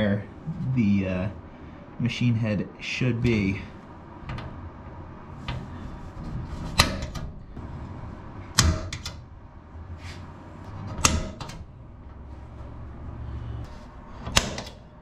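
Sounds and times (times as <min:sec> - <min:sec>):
center punch clicking on rivets: 0:14.2 - 0:14.8.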